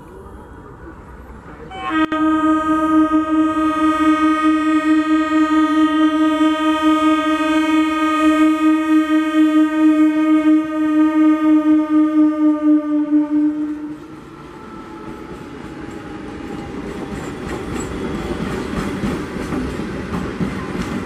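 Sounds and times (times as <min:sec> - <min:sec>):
train horn blast: 0:01.7 - 0:15.8.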